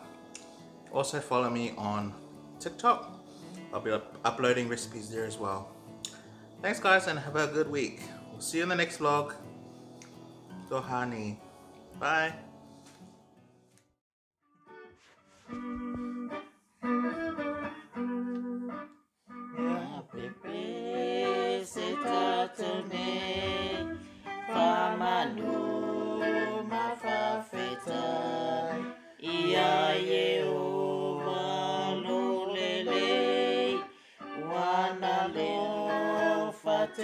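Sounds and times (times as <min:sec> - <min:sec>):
electric guitar: 0:14.6 - 0:29.2
woman singing a hymn: 0:19.6 - 0:37.0.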